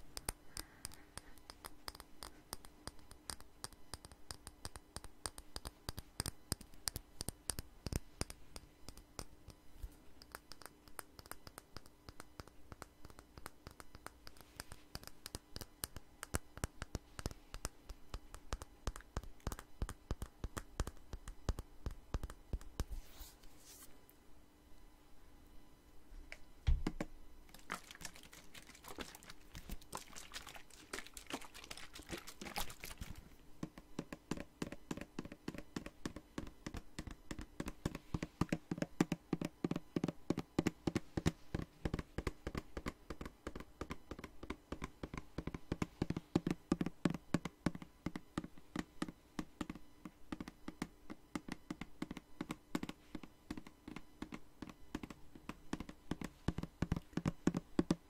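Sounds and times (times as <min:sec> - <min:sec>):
fingernails tapping on spray bottle: 0:26.8 - 0:58.0.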